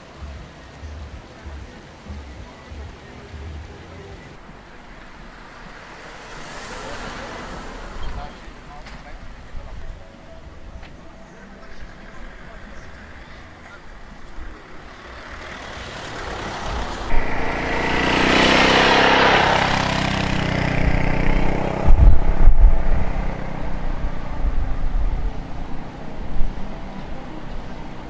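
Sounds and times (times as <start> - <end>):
vehicle engine driving past: 4.0 - 9.7, 12.0 - 28.0.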